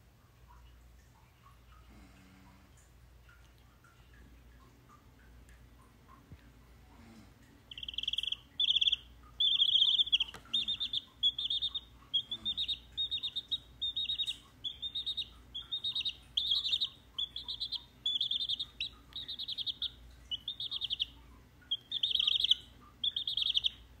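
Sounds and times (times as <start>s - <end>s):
chick chirping: 7.7s - 24.0s.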